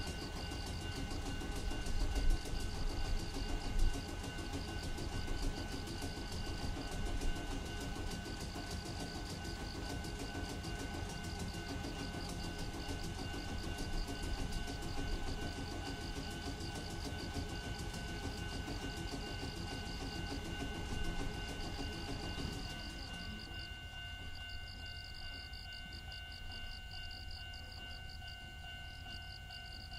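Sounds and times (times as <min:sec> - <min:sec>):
high ringing tones: 0:00.0 - 0:29.9.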